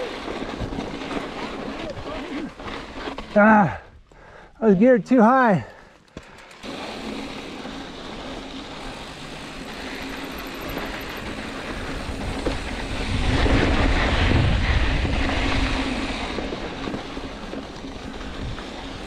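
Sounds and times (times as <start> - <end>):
bike tyres rolling over gravel: 0.0 - 4.5, 5.6 - 19.0
wind rushing over microphone: 8.4 - 17.4.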